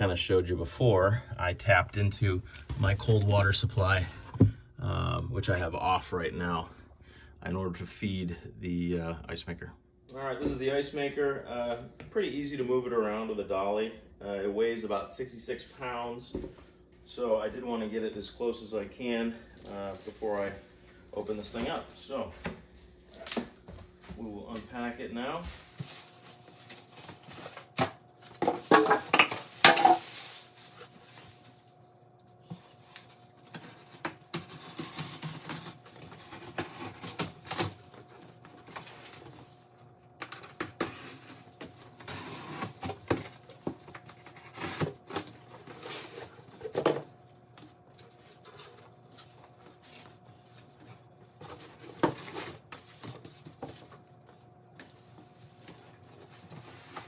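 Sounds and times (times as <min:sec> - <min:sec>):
faint steady hum: 0:00.0 - 0:57.0
cardboard and plastic packing rustling: 0:19.5 - 0:31.8, 0:32.4 - 0:57.0.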